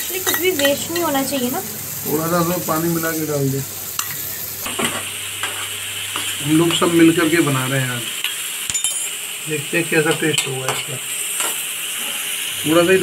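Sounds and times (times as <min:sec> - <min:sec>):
onions sizzling in hot oil: 0:00.0 - 0:13.0
metal spatula scraping a pan: 0:03.9 - 0:06.9, 0:10.1 - 0:12.4.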